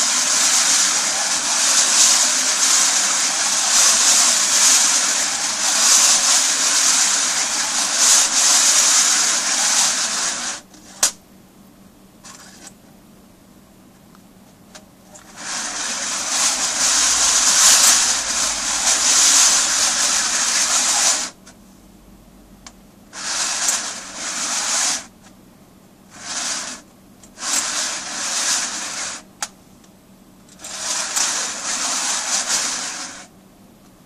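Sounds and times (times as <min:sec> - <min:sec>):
coins scraping on metal lid: 0:27.4 - 0:29.2.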